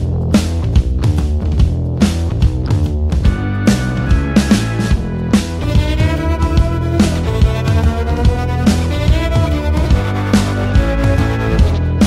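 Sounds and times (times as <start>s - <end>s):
drum beat: 0.0s - 12.0s
held instrumental notes: 3.1s - 12.0s.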